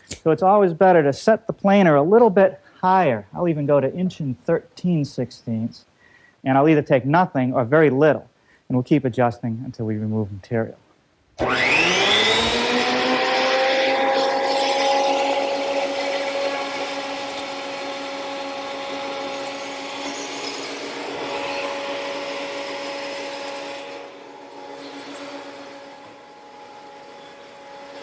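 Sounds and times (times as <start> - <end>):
thickness planer whining: 11.4 - 28.0.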